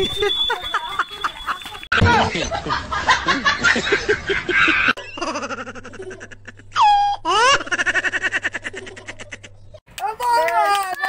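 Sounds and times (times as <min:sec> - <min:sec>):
high giggling laugh: 0:00.0 - 0:09.8.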